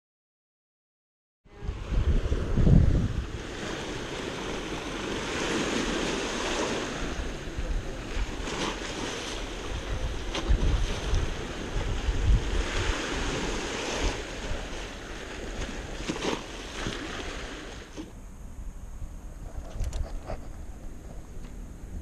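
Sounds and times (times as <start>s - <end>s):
wind buffeting microphone: 1.5s - 22.0s
waves washing against seawall: 1.6s - 18.2s.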